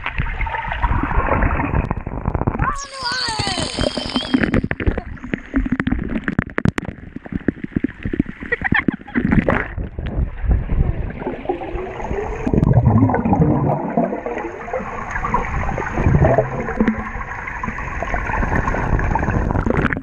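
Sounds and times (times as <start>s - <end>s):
bubbles: 0.0s - 20.0s
churning water underwater: 0.0s - 20.0s
low rumbling of swimmers: 4.0s - 20.0s.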